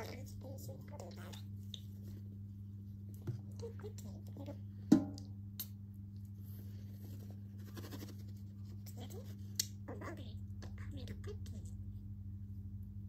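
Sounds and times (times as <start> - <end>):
steady low hum: 0.0 - 13.0
small taps and scuffling: 3.1 - 3.6.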